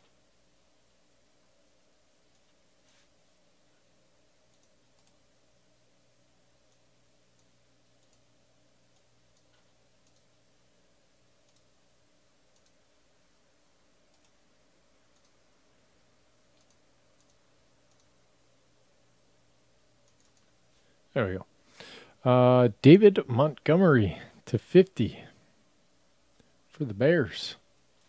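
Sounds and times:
low steady hum: 0.0s - 28.0s
keyboard and mouse clicks: 4.5s - 5.2s, 8.9s - 10.3s, 11.4s - 11.7s, 12.5s - 12.8s, 14.1s - 14.4s, 15.1s - 15.4s, 16.5s - 18.1s, 20.0s - 20.5s.

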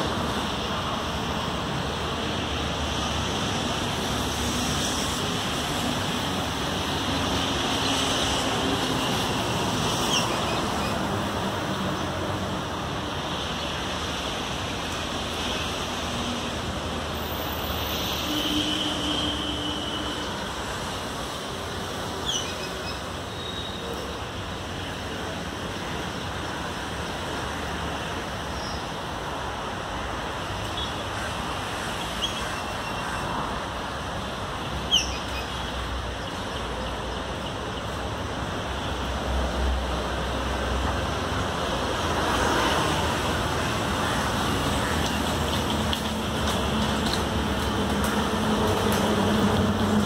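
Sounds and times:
highway traffic roar: 0.0s - 50.0s
heavy vehicles rumbling past: 35.5s - 50.0s.

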